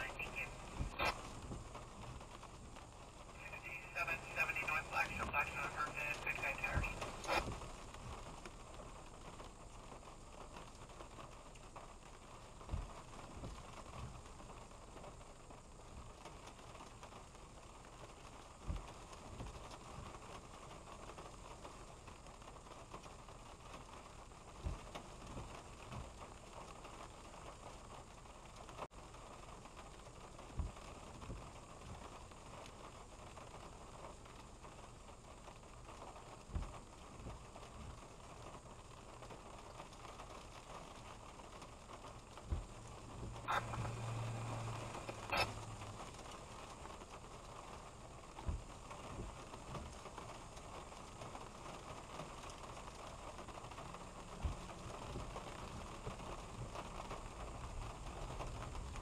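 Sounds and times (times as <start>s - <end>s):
rain pattering on a car: 0.0s - 59.0s
windshield wipers sweeping: 39.8s - 59.0s
wiper motor hum: 42.4s - 46.6s.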